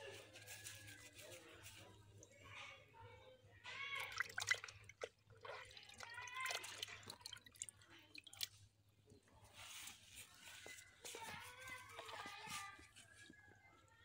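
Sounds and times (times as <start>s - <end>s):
water splashing in metal bucket: 3.8s - 8.6s.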